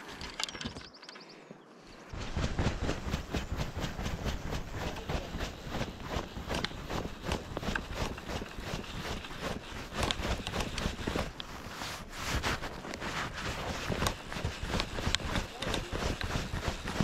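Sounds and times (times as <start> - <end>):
handling clicks and knocks: 0.0 - 1.2.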